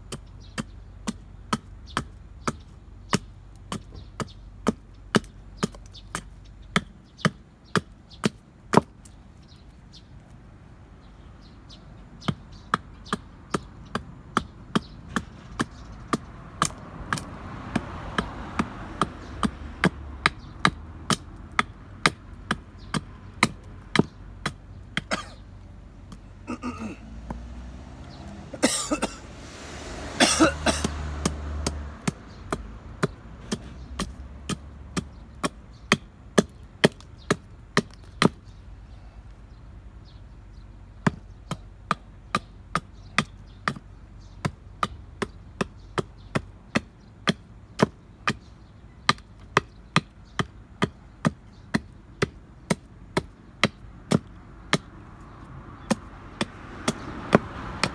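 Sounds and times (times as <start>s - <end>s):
hatchet chopping wood: 0.0s - 9.2s, 12.0s - 28.4s, 30.4s - 38.5s, 41.0s - 57.9s
rough rasping noises: 12.0s - 38.7s, 41.0s - 57.9s.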